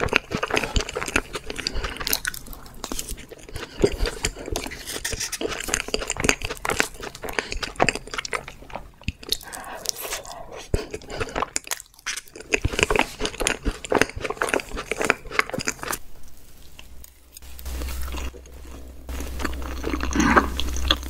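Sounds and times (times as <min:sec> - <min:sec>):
chewing cake: 0:00.0 - 0:16.0, 0:18.0 - 0:21.0
steady low hum: 0:14.9 - 0:21.0.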